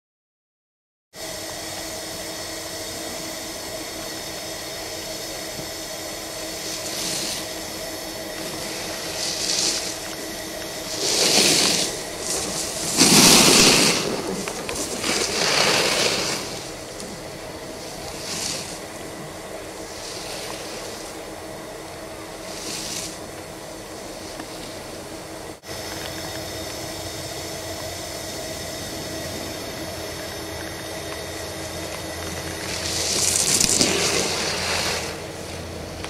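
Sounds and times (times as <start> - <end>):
steady low hum: 1.2 - 36.0
ski edges scraping on snow: 6.5 - 25.2, 28.3 - 36.0.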